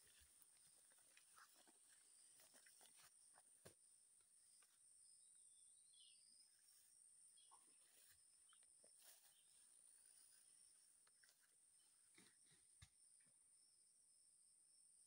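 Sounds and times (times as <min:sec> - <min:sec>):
bird chirp: 0:04.5 - 0:12.0.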